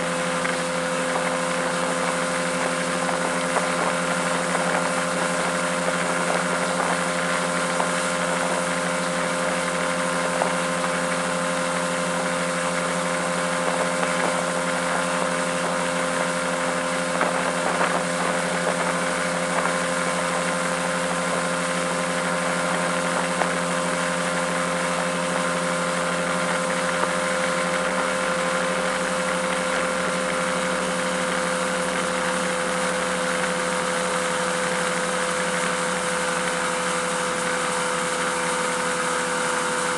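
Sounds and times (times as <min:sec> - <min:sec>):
hiss of spray and wake: 0:00.0 - 0:39.9
outboard motor running: 0:00.0 - 0:39.9.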